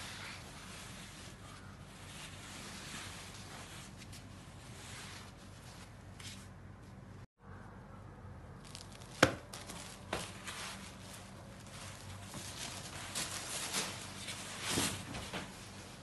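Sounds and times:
fabric rustling: 0.0s - 6.5s, 8.6s - 16.0s.

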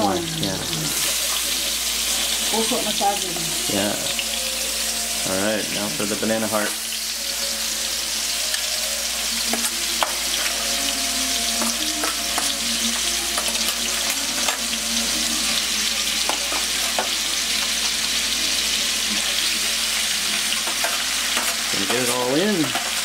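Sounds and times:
oil sizzling in a wok: 0.0s - 23.0s
metal spatula scraping: 9.5s - 17.8s, 20.3s - 23.0s.

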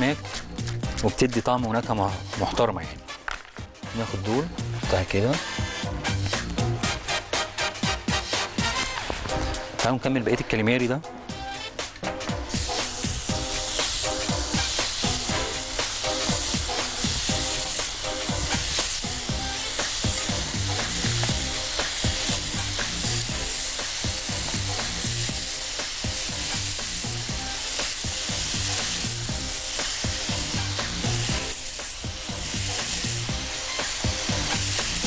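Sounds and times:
background music: 0.0s - 35.0s
calamari sizzling on grill: 11.4s - 35.0s.

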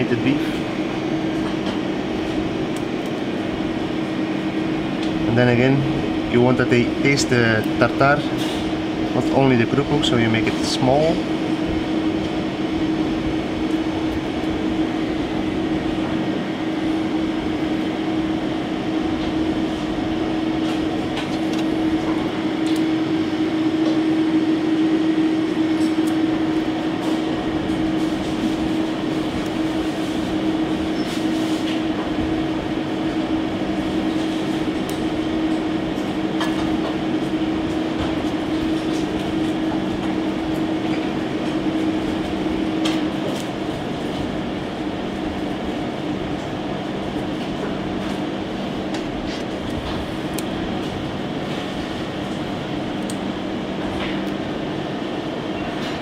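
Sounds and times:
kitchen ventilation humming: 0.0s - 56.0s.

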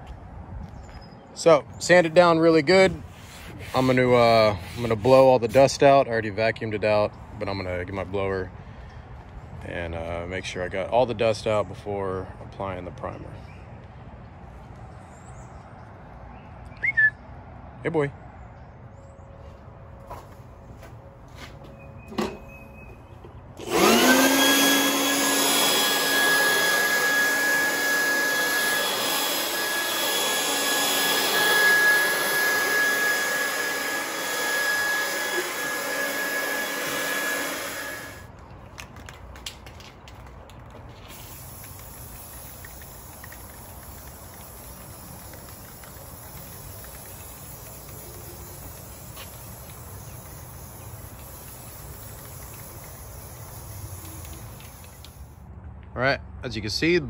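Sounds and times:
outdoor background: 0.0s - 57.0s
electric leaf blower running: 23.6s - 38.3s, 41.1s - 55.2s.

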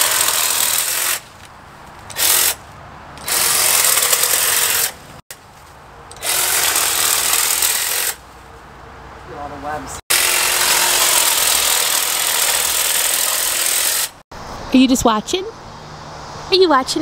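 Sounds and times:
electric hedge trimmer buzzing: 0.0s - 1.2s, 2.1s - 2.6s, 3.2s - 5.0s, 6.2s - 8.2s, 10.1s - 14.2s.

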